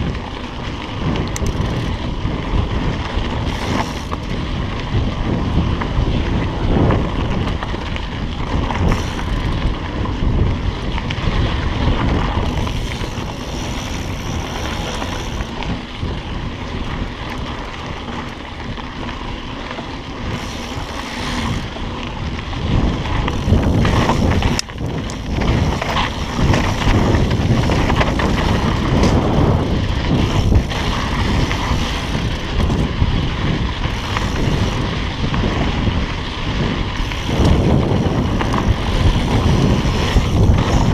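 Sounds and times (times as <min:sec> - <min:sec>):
tyres rolling over dirt: 0:00.0 - 0:40.9
wind buffeting microphone: 0:00.0 - 0:40.9.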